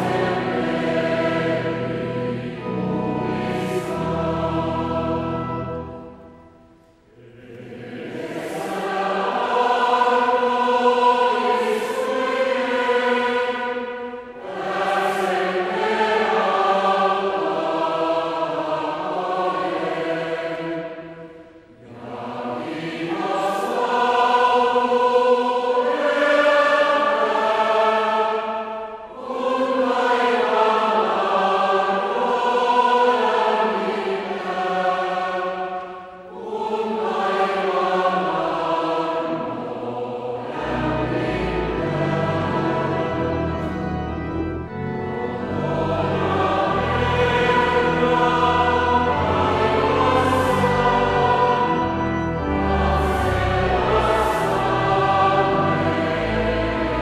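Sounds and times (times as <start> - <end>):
low musical accompaniment: 0.0 - 13.5, 36.4 - 57.0
choir singing a hymn: 0.0 - 57.0.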